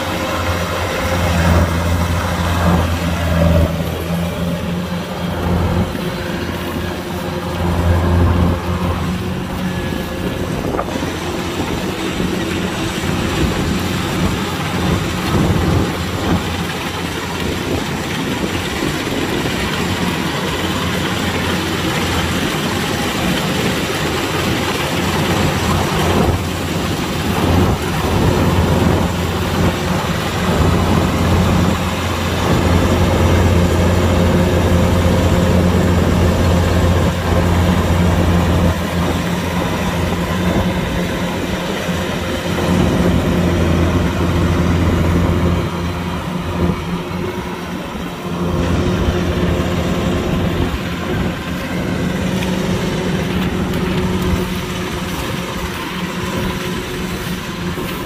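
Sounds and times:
diesel engine running: 0:00.0 - 0:58.0
rush of machinery noise: 0:00.0 - 0:58.0.

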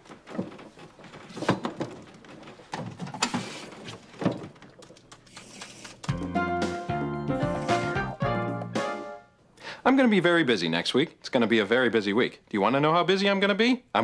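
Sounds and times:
knocks and clatter: 0:00.0 - 0:06.3
music jingle: 0:06.1 - 0:09.4.

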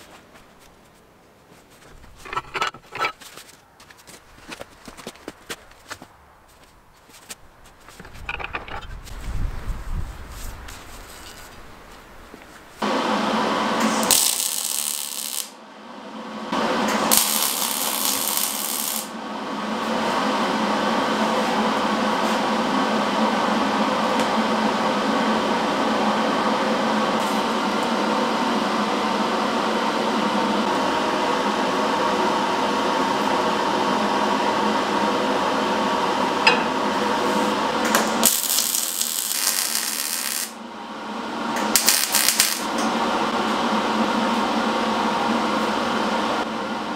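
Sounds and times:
welding crackle and hiss: 0:13.8 - 0:15.6, 0:16.9 - 0:19.2, 0:37.8 - 0:40.6, 0:41.7 - 0:42.8.

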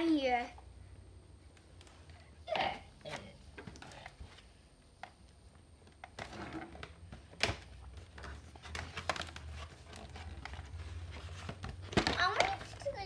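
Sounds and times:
cardboard and plastic packaging rustling: 0:05.8 - 0:13.0.

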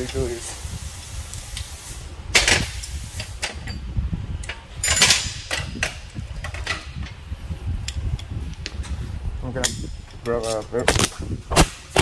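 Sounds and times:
steady low rumble: 0:00.0 - 0:12.0
tools clattering and rustling: 0:02.4 - 0:07.2, 0:09.6 - 0:11.2.

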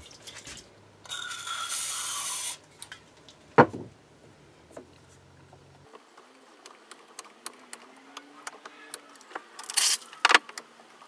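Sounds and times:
metal-on-metal rasping scrape: 0:01.1 - 0:02.6.

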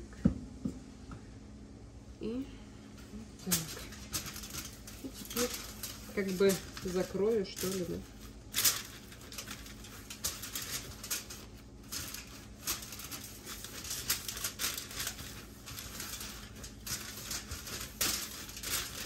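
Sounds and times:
steady low hum: 0:00.0 - 0:19.0
parchment paper crinkling: 0:03.4 - 0:19.0.

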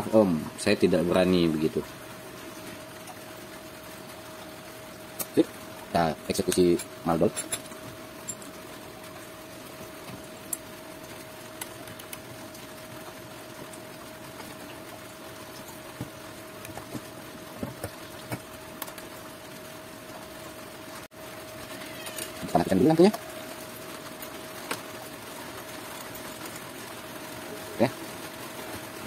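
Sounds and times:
faint hum and hiss: 0:00.0 - 0:29.0
equipment and cables being handled: 0:15.9 - 0:19.1.

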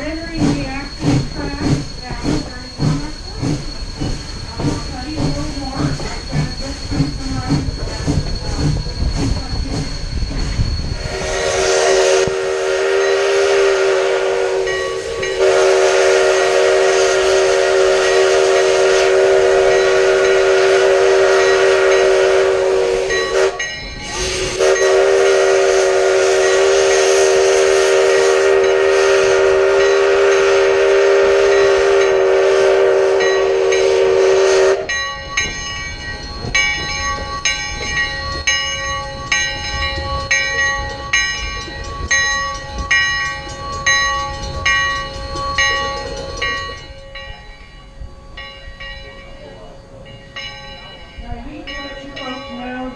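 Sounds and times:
steam locomotive whistle: 0:11.0 - 0:35.0
bell ringing: 0:14.6 - 0:15.5, 0:23.0 - 0:24.9, 0:33.2 - 0:34.0, 0:34.8 - 0:52.9.

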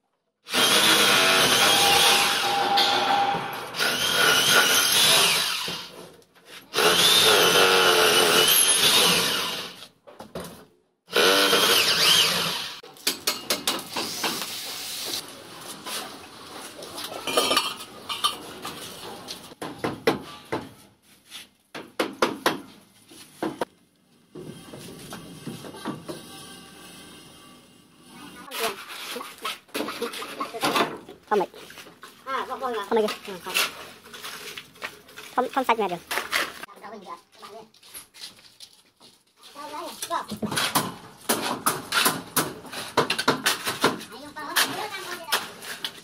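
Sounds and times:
electric power tool running: 0:00.5 - 0:05.9, 0:06.8 - 0:09.8, 0:11.1 - 0:12.8.

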